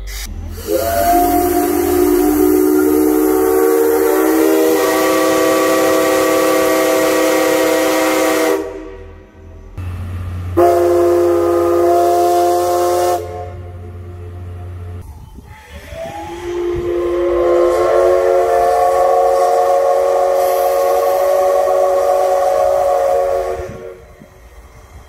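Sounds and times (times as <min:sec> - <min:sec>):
hiss of steam: 0:00.0 - 0:07.0, 0:15.4 - 0:25.0
steam locomotive chime whistle: 0:00.4 - 0:09.1, 0:10.6 - 0:14.3, 0:15.1 - 0:24.4.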